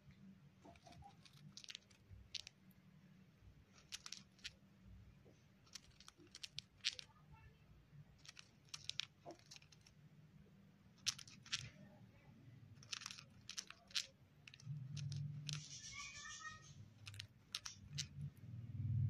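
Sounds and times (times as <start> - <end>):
soft bird chirr: 15.2 - 17.1
bird beak grinding clicks: 17.0 - 18.1.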